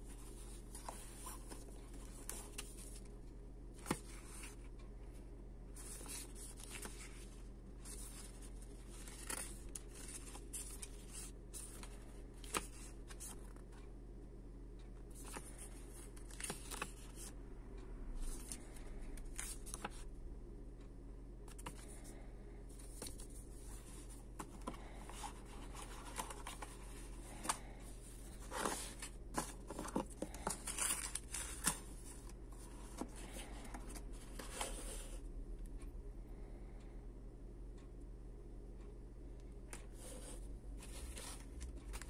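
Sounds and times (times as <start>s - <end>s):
booklet pages leafed through: 0.0s - 3.1s, 3.8s - 4.7s, 5.8s - 13.9s, 15.1s - 17.3s, 18.2s - 20.0s, 22.7s - 35.2s, 39.7s - 42.0s.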